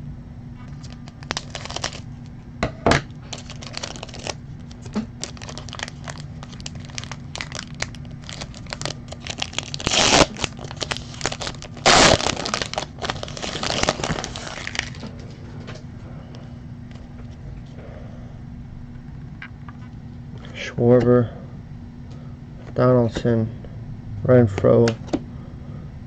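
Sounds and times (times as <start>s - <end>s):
foil wrapper crinkling: 0.7s - 2.2s, 3.2s - 15.1s.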